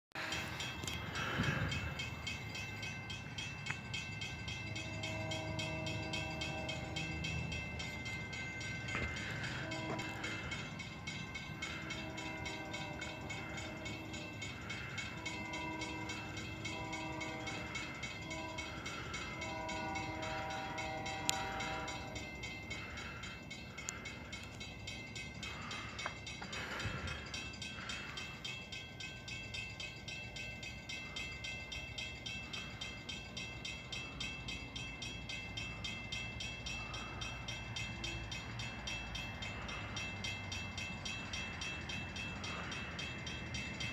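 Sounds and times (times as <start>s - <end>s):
low train rumble: 0.1s - 43.9s
train air horn blasts: 4.7s - 7.2s, 9.2s - 10.5s, 11.6s - 23.2s.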